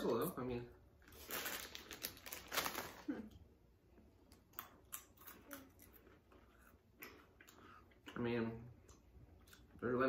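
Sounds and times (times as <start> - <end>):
plastic bag rustling: 1.0 - 3.3
crunching pretzel sticks: 1.1 - 3.1.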